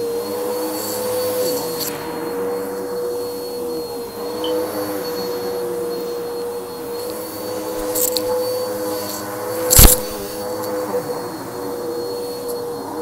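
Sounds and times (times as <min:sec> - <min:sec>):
vacuum cleaner motor whine: 0:00.0 - 0:13.0
clicks: 0:09.7 - 0:10.2.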